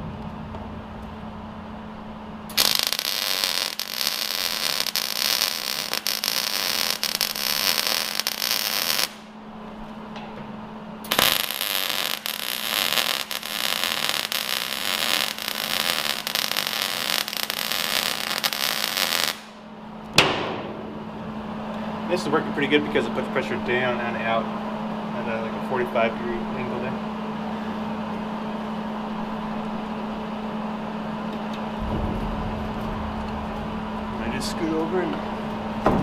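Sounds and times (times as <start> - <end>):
steady low hum: 0.0 - 36.0
welder crackling sizzle: 2.5 - 9.3, 11.0 - 19.6.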